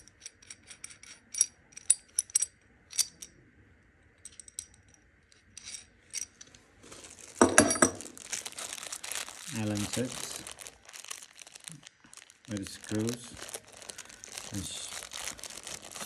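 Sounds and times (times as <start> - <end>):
metal nuts and washers rattling: 0.0 - 3.3, 4.2 - 6.6, 7.2 - 8.4
handling rustle and knock: 5.6 - 16.0.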